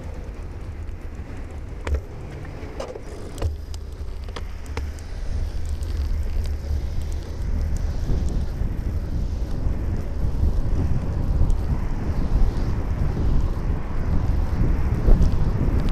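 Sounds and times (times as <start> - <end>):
bicycle knocks and rattles: 0.0 - 6.5
road and wind rumble: 0.0 - 15.9.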